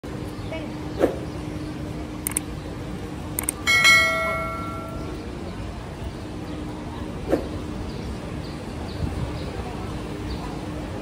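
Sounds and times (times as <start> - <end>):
light clicks: 2.2 - 2.4, 3.4 - 3.6
bell ringing: 3.7 - 5.2.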